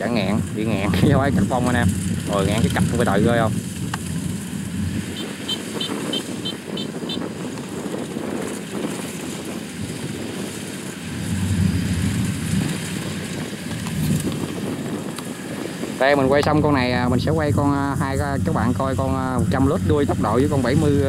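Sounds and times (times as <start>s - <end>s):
combine harvester running: 7.8s - 21.0s.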